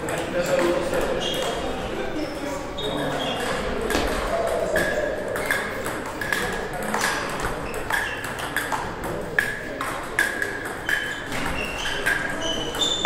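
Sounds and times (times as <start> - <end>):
table tennis ball clicking: 3.3 - 13.0.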